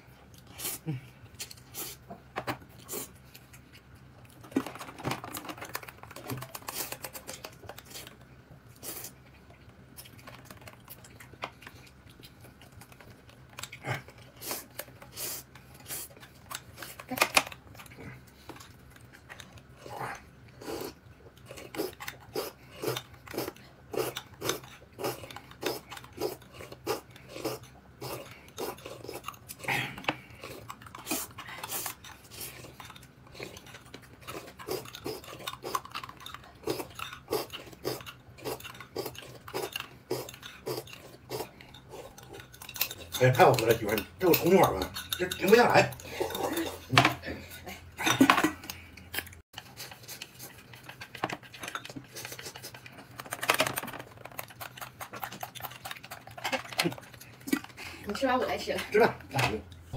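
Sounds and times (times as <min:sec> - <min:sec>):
chewing: 0:00.0 - 0:59.9
spoon clinking and scraping bowl: 0:41.7 - 0:48.4.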